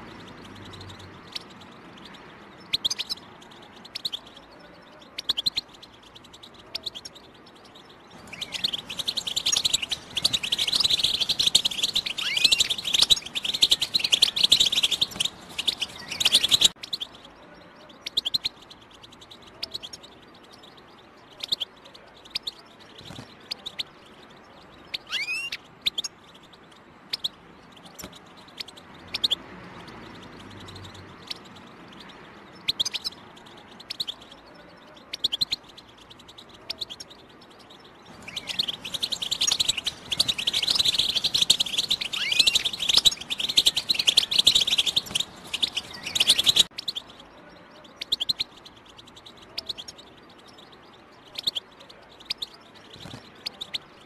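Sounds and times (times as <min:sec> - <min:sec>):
goldfinch chirps: 0:00.0 - 0:54.0
rapid twittering birdsong: 0:00.0 - 0:54.0.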